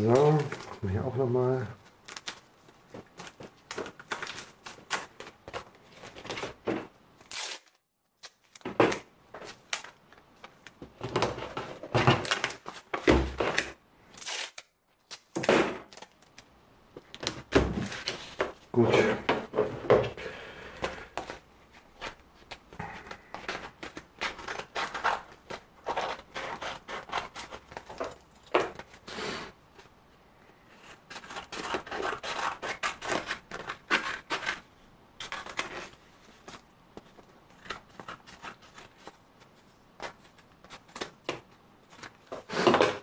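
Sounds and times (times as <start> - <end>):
scissors snipping paper: 22.0 - 28.8, 30.9 - 34.6.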